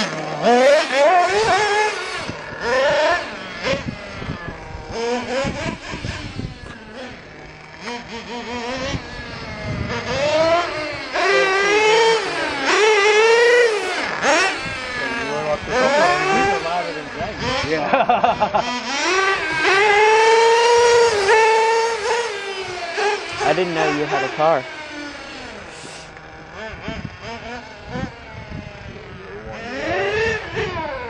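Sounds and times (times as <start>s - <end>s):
small nitro engine revving: 0.0s - 31.0s.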